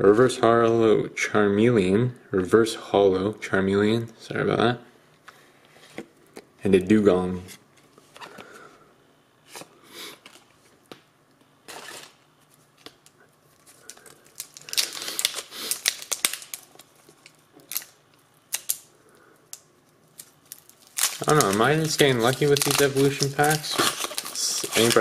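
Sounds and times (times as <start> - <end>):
foil pack tearing open: 11.7 - 12.2, 13.7 - 18.9, 20.2 - 25.0
foil wrapper crinkling: 11.7 - 18.9, 19.5 - 25.0.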